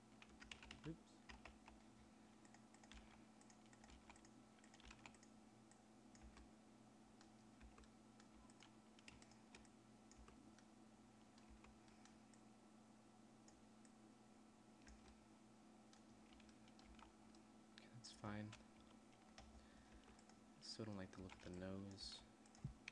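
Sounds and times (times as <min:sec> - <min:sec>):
steady low hum: 0:00.0 - 0:22.9
keyboard and mouse clicking: 0:00.2 - 0:01.8, 0:02.4 - 0:06.5, 0:07.2 - 0:10.7, 0:11.3 - 0:12.5, 0:14.8 - 0:15.2, 0:15.9 - 0:17.4, 0:18.5 - 0:20.4, 0:21.2 - 0:21.8, 0:22.4 - 0:22.9.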